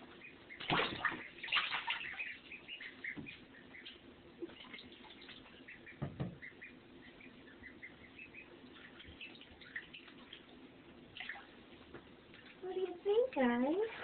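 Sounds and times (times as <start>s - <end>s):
ducklings peeping: 0.0s - 14.0s
dull bump: 6.0s - 6.4s.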